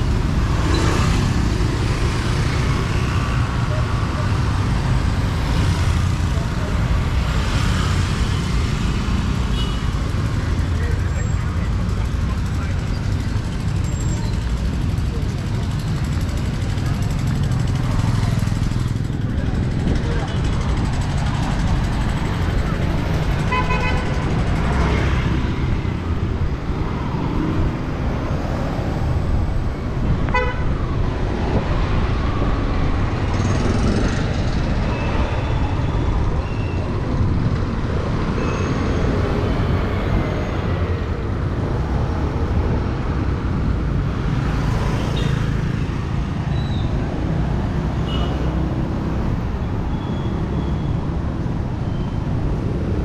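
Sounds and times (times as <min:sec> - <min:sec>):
traffic engines rumbling: 0:00.0 - 0:53.0
car horn toots: 0:30.3 - 0:30.7.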